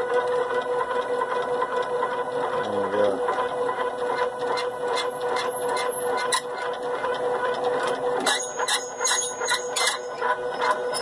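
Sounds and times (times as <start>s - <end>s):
stepper motors whining: 0.0s - 11.0s
sharp squeaks and clicks: 2.6s - 11.0s.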